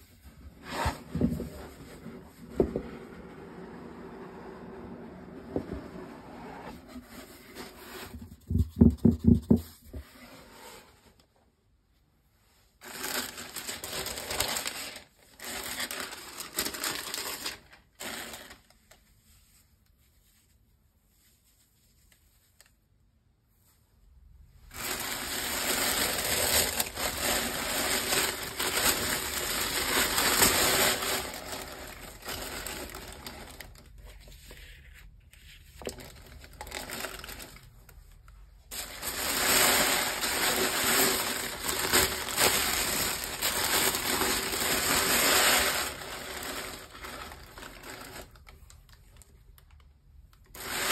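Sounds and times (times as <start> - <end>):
tissue paper rustling: 12.8 - 22.7, 24.6 - 37.7, 38.4 - 48.8, 50.6 - 50.9.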